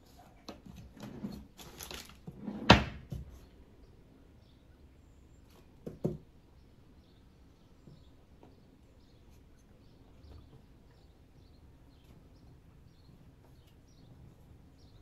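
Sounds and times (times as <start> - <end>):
drawer rattling and knocking: 2.3 - 3.3.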